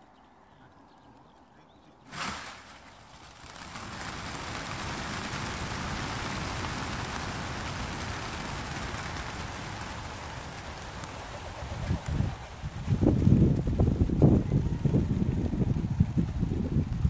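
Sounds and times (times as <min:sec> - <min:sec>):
sharp clatter: 0:02.1 - 0:13.2
pigeon wings flapping: 0:02.1 - 0:17.0.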